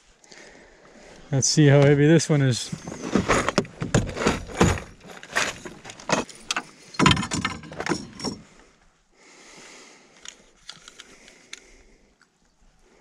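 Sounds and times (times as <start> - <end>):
metallic jingles: 5.6 - 8.4
sharp knocks and clicks: 5.9 - 8.4.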